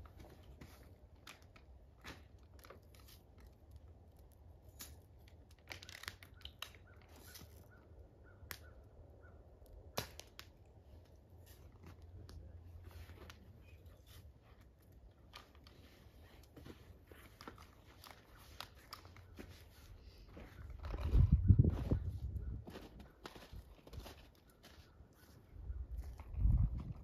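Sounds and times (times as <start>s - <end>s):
wood fire crackling and popping: 0.0s - 19.7s.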